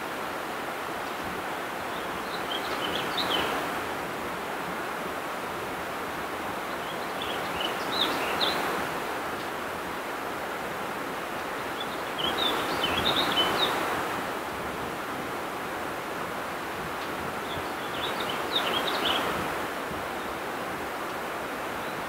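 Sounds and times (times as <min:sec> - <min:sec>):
songbird chirping: 0:01.4 - 0:03.8, 0:06.6 - 0:09.5, 0:11.4 - 0:14.0, 0:17.0 - 0:20.4.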